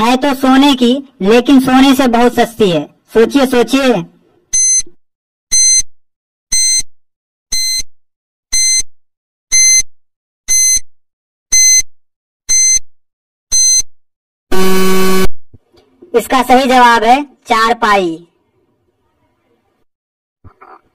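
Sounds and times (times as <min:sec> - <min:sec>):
low buzzer: 0:10.5 - 0:10.9, 0:12.5 - 0:12.9, 0:13.5 - 0:13.9, 0:14.5 - 0:15.4.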